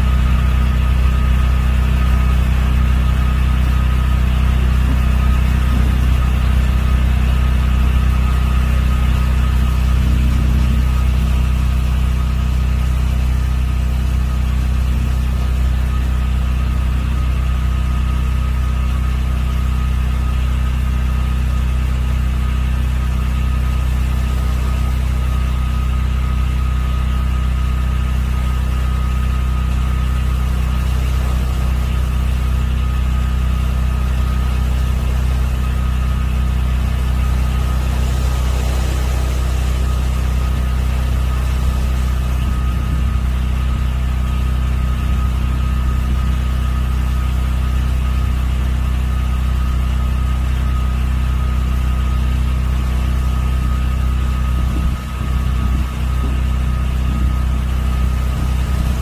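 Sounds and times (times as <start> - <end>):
thin high whine: 0.0 - 16.2, 23.1 - 47.4
engine idling hum: 0.0 - 59.0.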